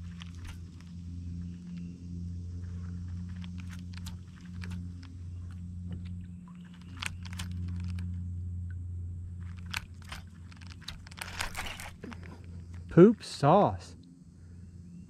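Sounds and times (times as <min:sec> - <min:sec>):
low steady hum: 0:00.0 - 0:15.0
fishing reel cranking clicks: 0:06.7 - 0:08.0, 0:09.4 - 0:12.2.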